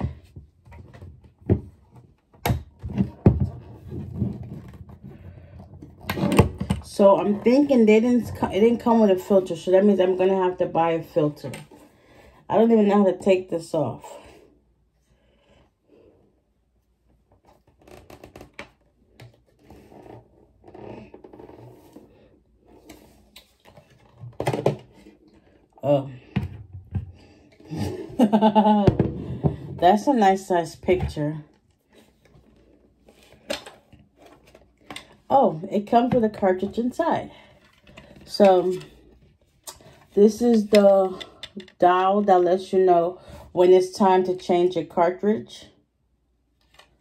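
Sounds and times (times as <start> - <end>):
hard plastic rubbing and knocking: 0.0 - 6.9
plastic pitcher knocks and clunks: 24.0 - 25.0, 26.2 - 27.2, 28.8 - 29.8.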